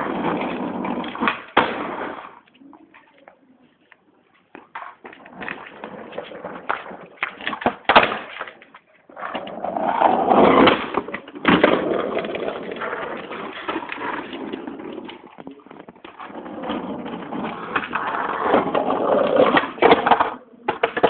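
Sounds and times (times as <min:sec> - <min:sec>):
skateboard impact: 0:00.0 - 0:03.3, 0:04.4 - 0:21.0
skateboard knocks and clacks: 0:00.0 - 0:03.4, 0:04.5 - 0:21.0
skateboard wheels rolling: 0:00.0 - 0:21.0.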